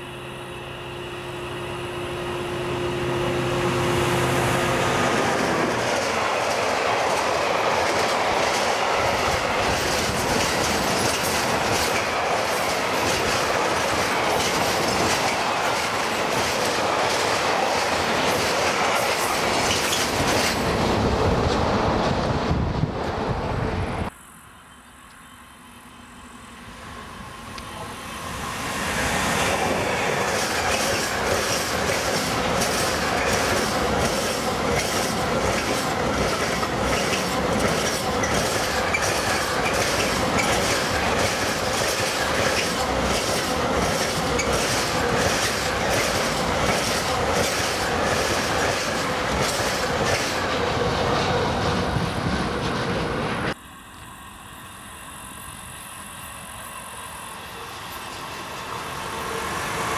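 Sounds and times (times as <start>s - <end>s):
freight train passing: 0.0s - 59.9s
wheels clicking over rail joints: 30.2s - 51.1s.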